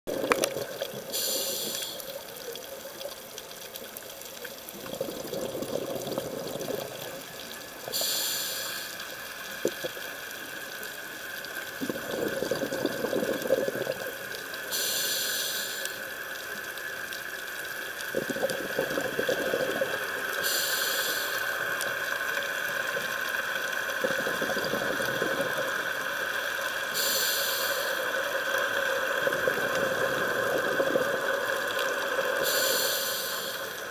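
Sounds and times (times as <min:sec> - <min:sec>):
rush of exhaled bubbles: 0:00.1 - 0:02.0, 0:04.7 - 0:07.3, 0:11.7 - 0:14.3, 0:18.1 - 0:20.7, 0:23.8 - 0:26.0, 0:29.2 - 0:31.5
regulator hiss on inhale: 0:00.3 - 0:02.5, 0:04.7 - 0:33.9.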